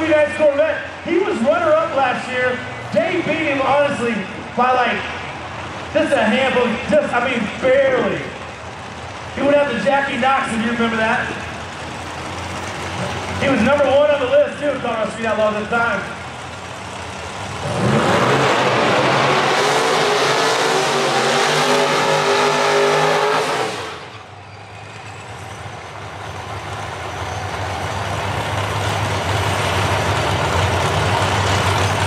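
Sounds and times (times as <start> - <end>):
low steady engine note: 0.0 - 17.8, 23.7 - 32.0
engine revving with tyres spinning: 16.5 - 32.0.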